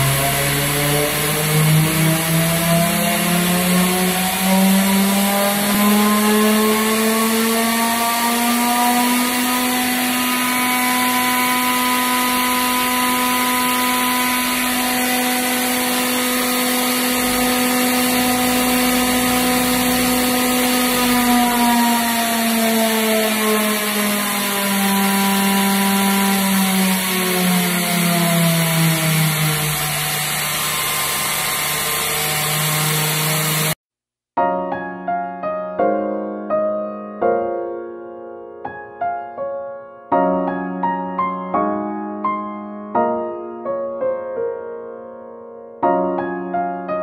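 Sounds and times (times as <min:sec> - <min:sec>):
air compressor motor whine: 0:00.0 - 0:33.8.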